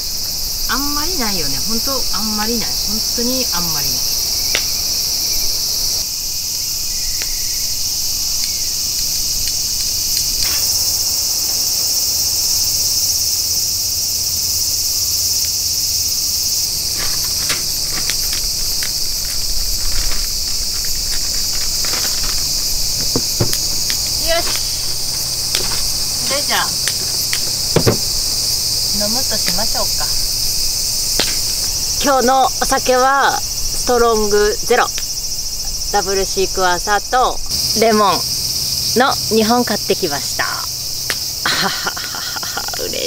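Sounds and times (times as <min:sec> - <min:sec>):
insects shrilling: 0:00.0 - 0:43.0
small objects knocking on table: 0:23.0 - 0:24.6, 0:26.9 - 0:28.2.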